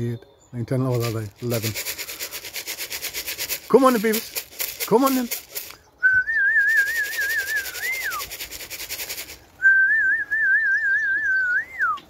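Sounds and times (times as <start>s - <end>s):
fast even rattle: 0.9s - 5.8s, 6.6s - 9.4s
person whistling warbling calls: 6.0s - 8.4s, 9.6s - 12.0s.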